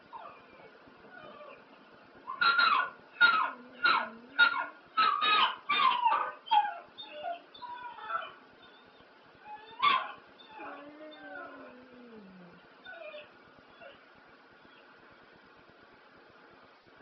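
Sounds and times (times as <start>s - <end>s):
dog yelping: 0.1s - 1.6s, 2.3s - 14.0s.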